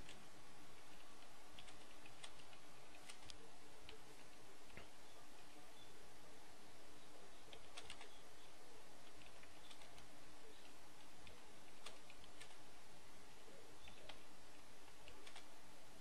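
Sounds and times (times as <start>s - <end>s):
steady low hiss: 0.0s - 16.0s.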